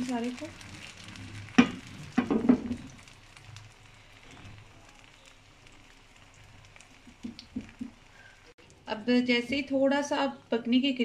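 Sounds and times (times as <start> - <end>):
batter sizzling in a frying pan: 0.0 - 11.0
tiny oil pops: 7.0 - 8.0.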